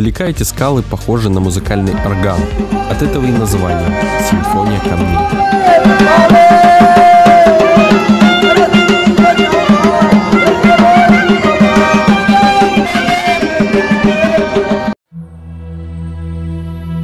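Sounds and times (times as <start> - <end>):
sliding folk melody: 0.7 - 17.0
hand drum beating: 2.2 - 14.8.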